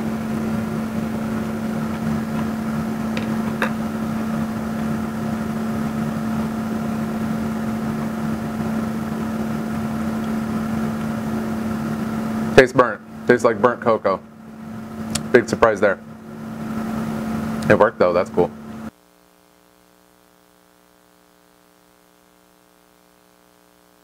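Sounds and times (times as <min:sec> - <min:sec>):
machine humming: 0:00.0 - 0:19.0.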